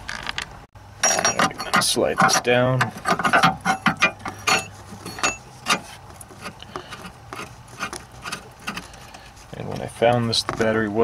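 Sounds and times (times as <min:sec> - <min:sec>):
metal rod scraping: 0:01.0 - 0:09.3.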